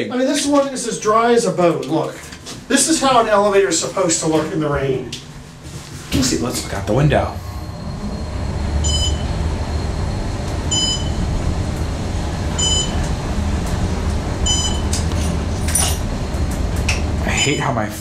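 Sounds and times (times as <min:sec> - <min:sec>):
elevator rumbling: 0:02.6 - 0:18.0
short electronic beep: 0:07.7 - 0:09.4, 0:10.7 - 0:11.2, 0:12.6 - 0:13.0, 0:14.4 - 0:14.9.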